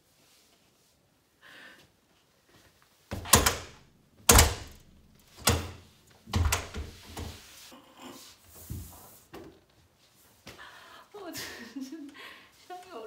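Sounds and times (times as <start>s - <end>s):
door banging against frame: 3.1s - 7.3s.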